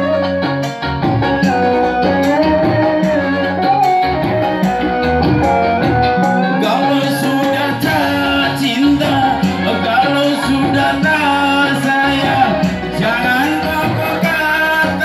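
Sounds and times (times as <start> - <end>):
electronic keyboard accompaniment: 0.0 - 15.0
man singing into a microphone: 4.9 - 15.0.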